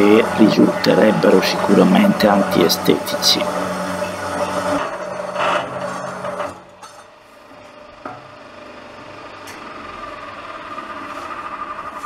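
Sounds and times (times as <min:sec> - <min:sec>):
metal saw cutting metal: 0:00.0 - 0:07.2, 0:10.2 - 0:12.0.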